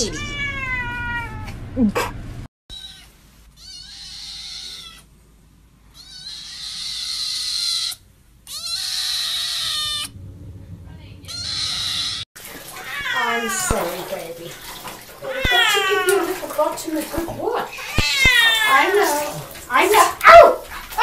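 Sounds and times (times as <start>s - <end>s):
kitten meowing: 0.0s - 1.5s, 2.7s - 5.1s, 5.9s - 10.1s, 11.3s - 12.2s, 15.3s - 16.2s, 17.7s - 19.3s.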